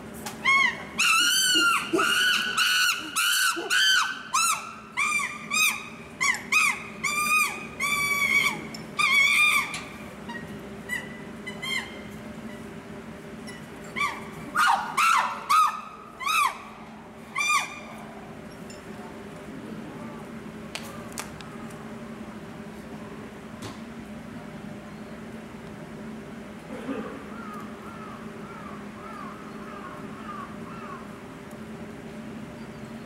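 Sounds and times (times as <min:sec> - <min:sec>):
faint steady hum: 0:00.0 - 0:33.0
chimpanzee hooting: 0:00.4 - 0:12.0, 0:14.0 - 0:16.7, 0:17.3 - 0:18.0.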